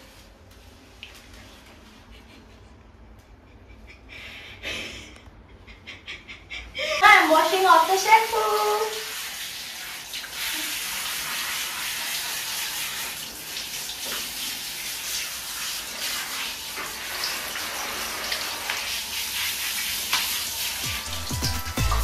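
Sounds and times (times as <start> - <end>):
shower water spraying: 7.2 - 22.0.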